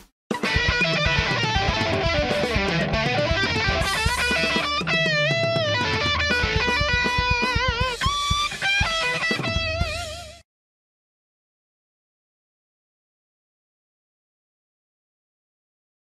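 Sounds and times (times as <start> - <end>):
electric guitar music: 0.3 - 10.4.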